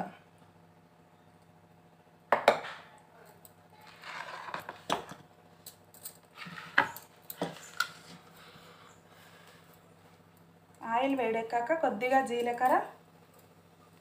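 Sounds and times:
metal scraping: 3.8s - 4.9s.

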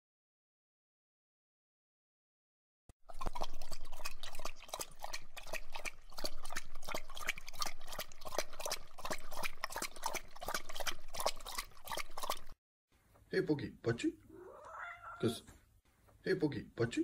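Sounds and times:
cat lapping liquid: 3.0s - 12.6s.

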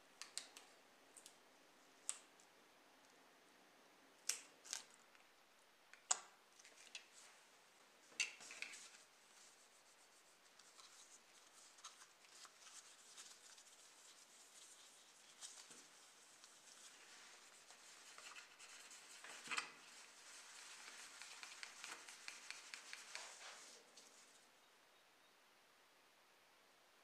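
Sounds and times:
soft rubbing with cloth pad: 6.6s - 24.5s.

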